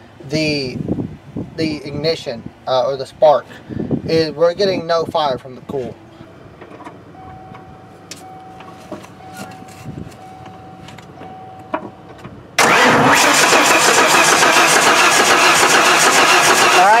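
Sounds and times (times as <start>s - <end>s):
engine cranked by starter: 12.6s - 17.0s.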